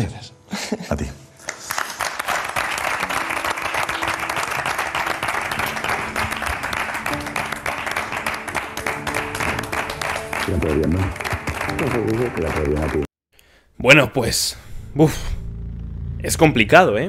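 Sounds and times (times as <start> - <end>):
music playing: 1.0 - 13.1
crowd applauding: 1.4 - 13.1.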